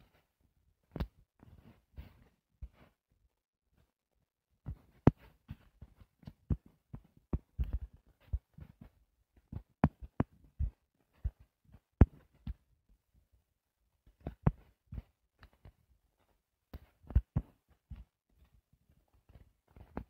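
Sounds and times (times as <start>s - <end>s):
stylus tapping on touchscreen: 4.7s - 8.6s, 12.0s - 12.6s.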